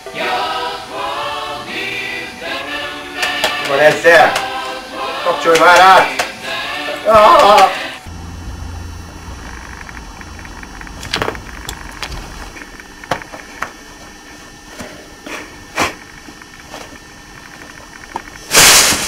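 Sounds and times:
low room hum: 0.0s - 19.0s
people moving on a sofa: 9.2s - 12.6s.

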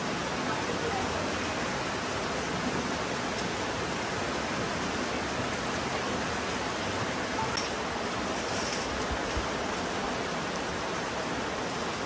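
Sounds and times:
rain falling on grass: 0.0s - 12.0s.

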